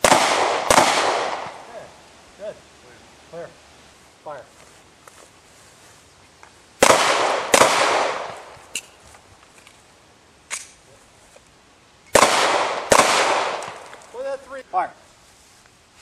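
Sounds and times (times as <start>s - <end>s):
pistol shots with echo: 0.0s - 1.7s, 6.8s - 8.5s, 12.1s - 13.8s.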